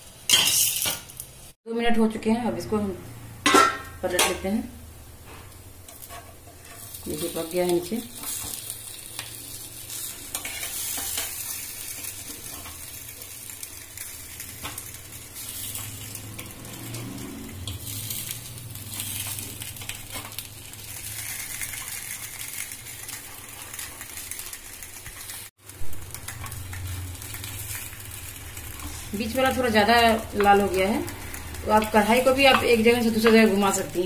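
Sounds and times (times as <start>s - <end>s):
food sizzling in oil: 0.0s - 1.6s, 3.4s - 34.0s
metal spoon and knife scraping pan: 0.3s - 1.0s, 10.0s - 11.4s.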